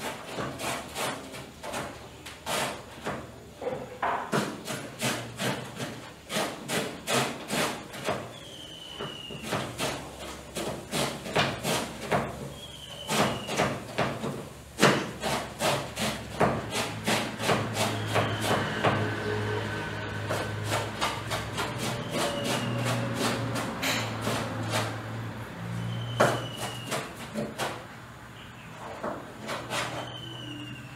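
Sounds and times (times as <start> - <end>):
knife chopping cabbage: 0.0 - 3.3, 4.2 - 8.3, 9.4 - 19.2, 20.2 - 25.2, 26.2 - 27.9.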